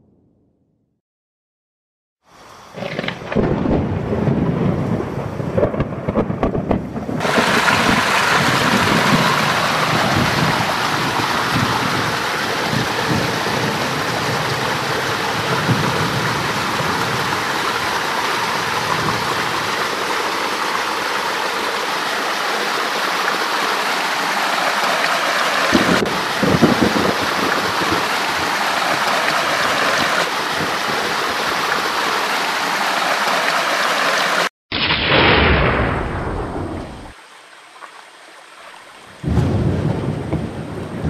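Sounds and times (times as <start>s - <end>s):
thunder rumbling: 3.0s - 19.8s, 25.7s - 29.9s, 34.7s - 37.2s, 39.2s - 41.0s
heavy rain hissing: 7.2s - 34.5s.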